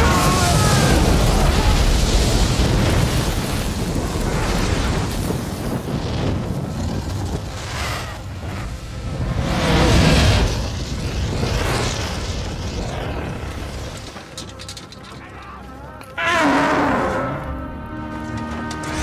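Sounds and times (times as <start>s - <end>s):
dragon breathing fire: 0.0s - 14.0s.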